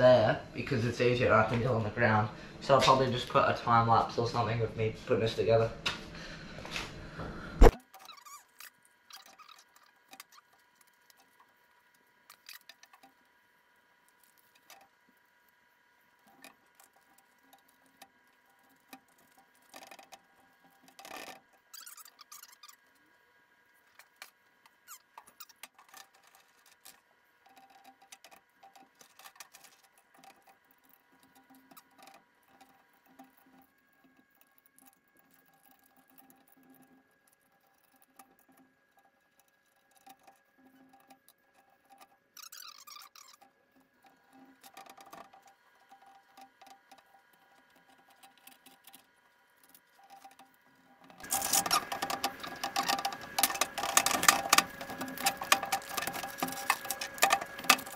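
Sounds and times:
metal tool scraping grip tape: 0:51.2 - 0:57.9.

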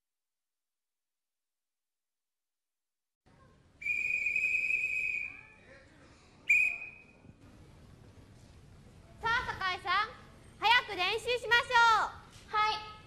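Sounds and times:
whistle blasts: 0:03.8 - 0:05.6, 0:06.5 - 0:07.3.

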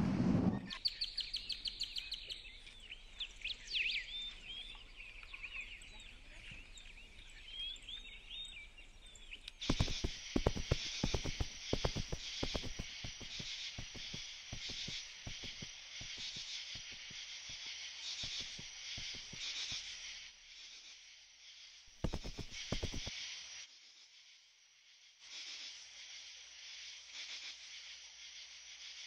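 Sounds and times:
high insect chirring: 0:09.7 - 0:17.1
crackling clicks: 0:09.7 - 0:17.2, 0:18.2 - 0:19.6, 0:22.0 - 0:23.1.

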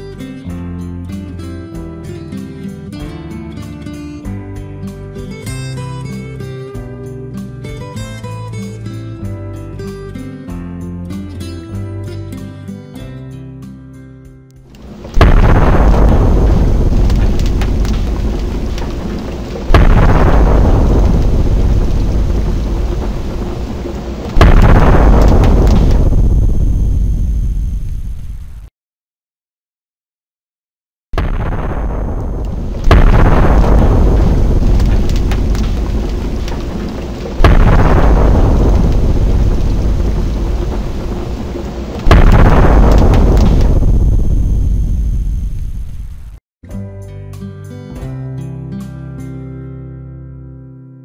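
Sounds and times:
explosions booming: 0:14.8 - 0:28.7, 0:31.2 - 0:46.4.

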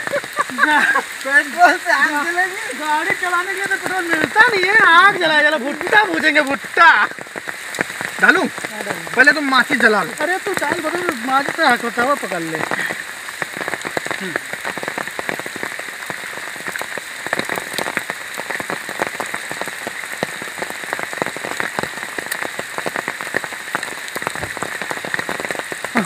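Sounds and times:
rain pattering: 0:00.0 - 0:26.0.

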